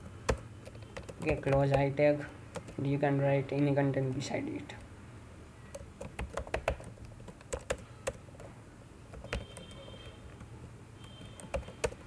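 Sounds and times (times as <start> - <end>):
computer keyboard keystrokes clicking: 0.3 - 1.9, 5.7 - 8.5, 9.1 - 12.0.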